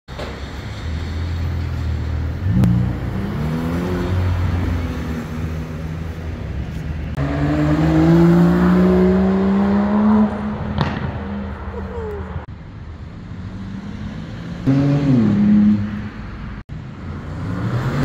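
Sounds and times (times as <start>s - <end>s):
sports car engine accelerating: 7.2s - 11.5s.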